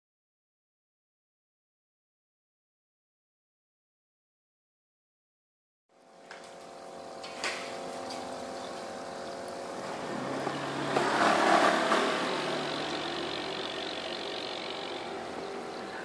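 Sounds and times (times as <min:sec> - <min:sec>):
steady hum: 0:05.9 - 0:16.0.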